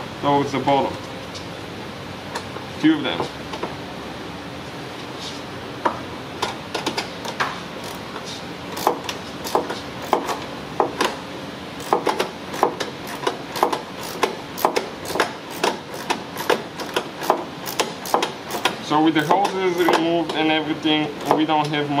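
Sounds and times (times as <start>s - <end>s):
hand ratchet clicking: 8.8s - 10.4s, 11.8s - 20.1s.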